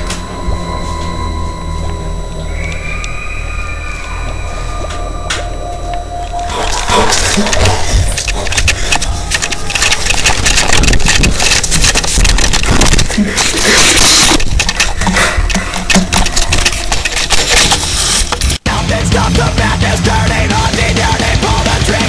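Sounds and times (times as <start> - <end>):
sharp clicks and knocks: 6.6 - 18.6.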